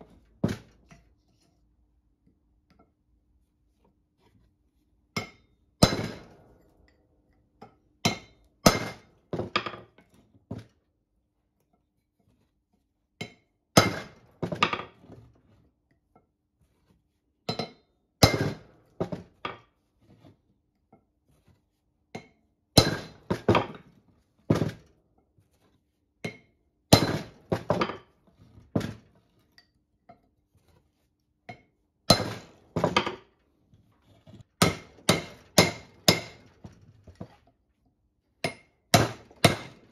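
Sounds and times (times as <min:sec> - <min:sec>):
hammer striking chisel on metal: 0:05.2 - 0:06.4, 0:34.6 - 0:36.5, 0:38.4 - 0:39.8.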